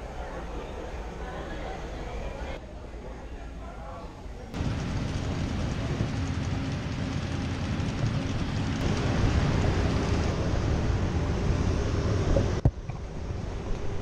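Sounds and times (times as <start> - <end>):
faint hum of vehicles: 4.5 - 14.0.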